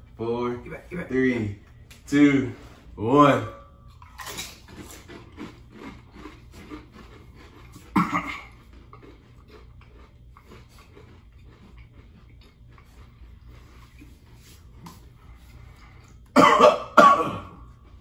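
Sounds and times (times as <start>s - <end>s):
crunching and chewing: 3.8s - 16.4s, 17.4s - 18.0s.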